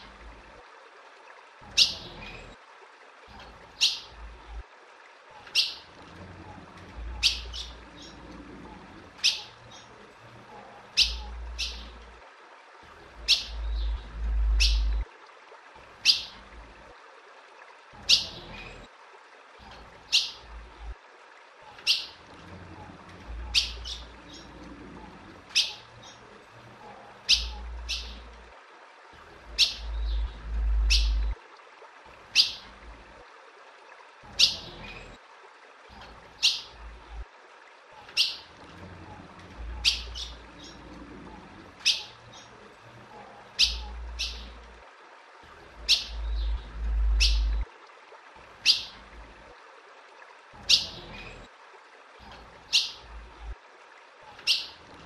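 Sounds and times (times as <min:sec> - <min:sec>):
low rumbles: 0:13.1 - 0:15.0, 0:29.4 - 0:31.4, 0:45.7 - 0:47.6.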